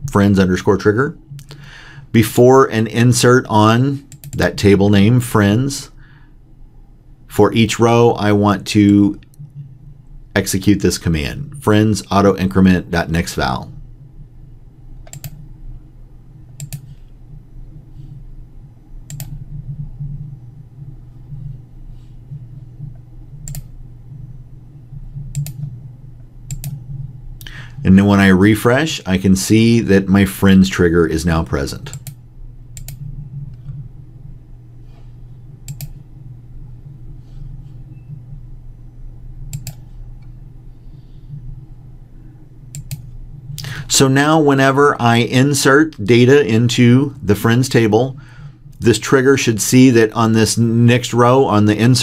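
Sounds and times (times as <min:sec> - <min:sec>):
steady low hum: 0:00.0 - 0:52.0
computer mouse clicking: 0:04.1 - 0:04.4, 0:15.0 - 0:15.4, 0:16.6 - 0:17.2, 0:19.0 - 0:19.4, 0:22.9 - 0:23.7, 0:25.3 - 0:25.7, 0:26.5 - 0:26.8, 0:31.9 - 0:32.2, 0:32.8 - 0:33.8, 0:35.6 - 0:36.0, 0:39.5 - 0:40.3, 0:42.7 - 0:43.2
computer mouse button clicks: 0:15.1 - 0:15.4.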